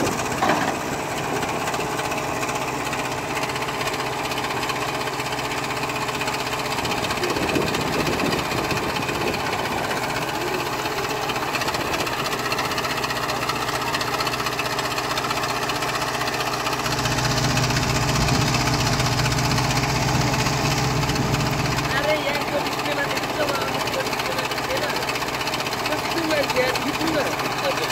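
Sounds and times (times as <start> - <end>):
diesel engine running: 0.0 - 27.9.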